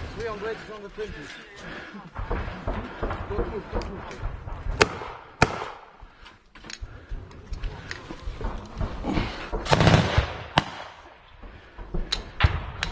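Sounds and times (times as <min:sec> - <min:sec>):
gunfire cracks: 0:02.2 - 0:06.0, 0:09.5 - 0:11.2.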